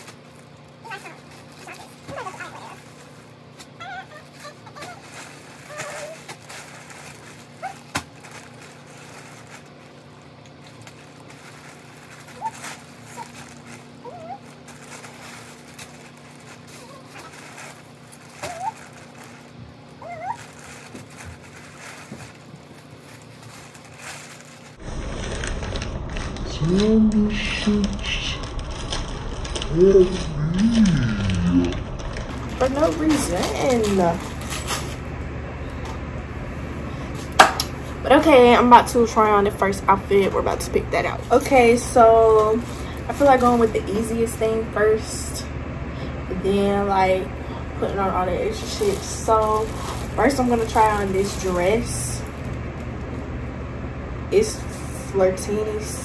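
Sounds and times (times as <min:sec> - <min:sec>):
plastic packaging crinkling: 0:00.0 - 0:26.9, 0:27.6 - 0:36.2, 0:36.9 - 0:45.2, 0:47.8 - 0:53.4
steady low hum: 0:00.0 - 0:56.0
animal whining: 0:00.8 - 0:06.4, 0:12.2 - 0:15.6, 0:16.5 - 0:21.7, 0:29.6 - 0:32.7
rising wordless vocal sound: 0:29.6 - 0:32.0.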